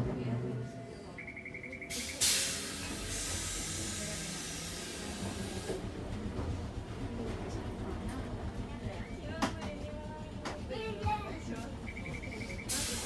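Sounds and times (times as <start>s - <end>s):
rapid electronic beeps: 1.2s - 2.2s, 11.9s - 12.7s
compressed air hissing: 1.9s - 5.7s.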